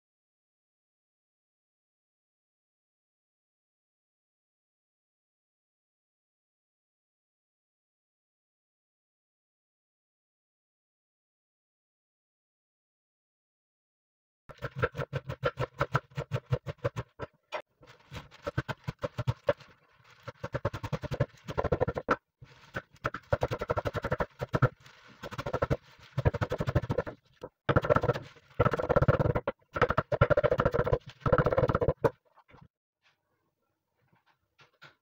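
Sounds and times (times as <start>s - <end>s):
knife chopping on wooden board: 14.5s - 17.7s, 18.3s - 19.7s, 20.3s - 32.1s.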